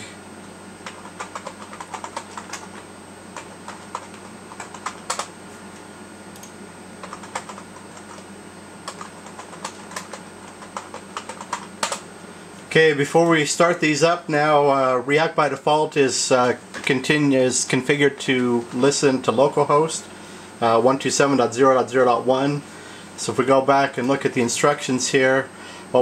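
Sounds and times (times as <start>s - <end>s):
background hum: 0.0s - 26.0s
keyboard typing: 0.8s - 5.3s, 6.4s - 12.0s.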